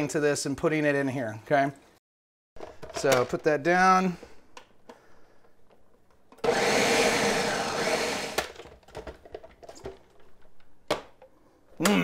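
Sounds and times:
countertop blender running: 6.4s - 8.5s.

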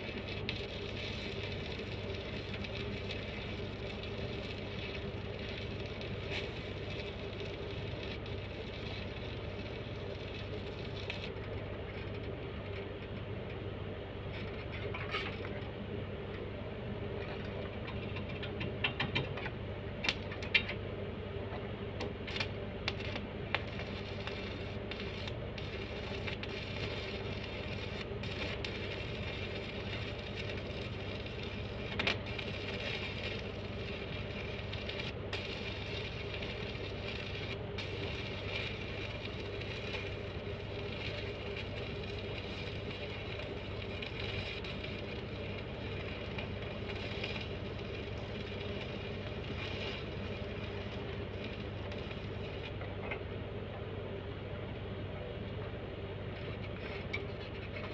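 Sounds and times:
steady mechanical hum: 0.0s - 57.9s
sharp clicks and metallic rattles: 9.1s - 13.7s, 17.2s - 20.8s.

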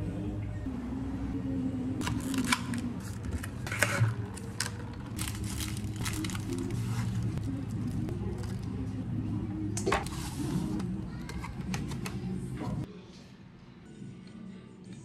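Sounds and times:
plastic cups and paper crinkling: 2.0s - 8.9s.

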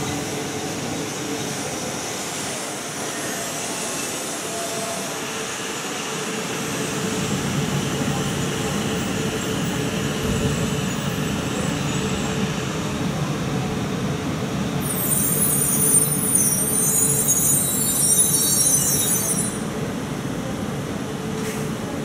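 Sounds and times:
train wheels rumbling on rail: 0.0s - 22.0s
high squeal: 2.5s - 5.7s, 14.8s - 19.7s.

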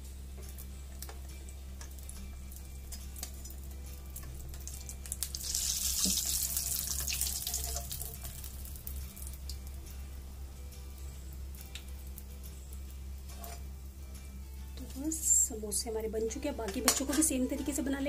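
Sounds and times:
food deep-frying in oil: 0.2s - 9.8s
steady low hum: 8.0s - 18.0s.

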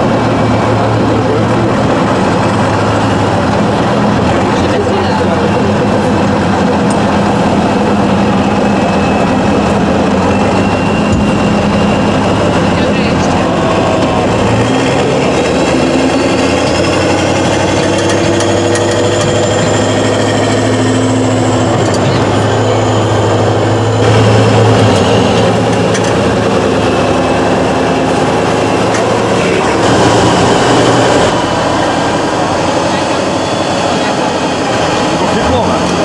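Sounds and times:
truck diesel engine working hard: 0.0s - 36.0s.

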